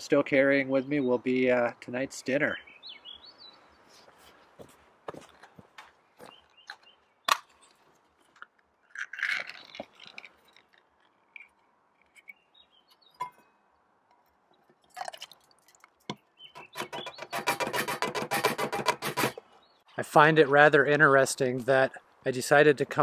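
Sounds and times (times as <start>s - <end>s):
metal lid tearing scrape: 16.7s - 19.4s.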